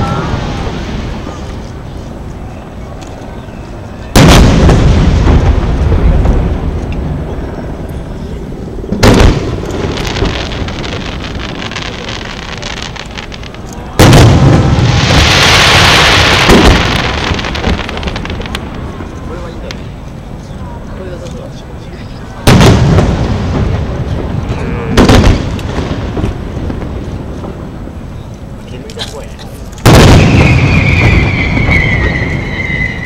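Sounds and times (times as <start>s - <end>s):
dense crackling of fireworks: 0.0s - 33.0s
firework shells booming: 4.1s - 7.8s, 8.9s - 19.9s, 22.4s - 28.0s, 29.8s - 33.0s.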